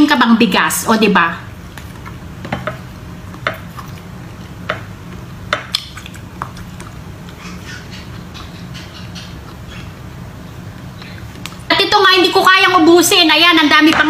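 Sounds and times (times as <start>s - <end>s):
low steady hum: 0.0s - 14.0s
eating smacks and clicks: 1.7s - 9.9s.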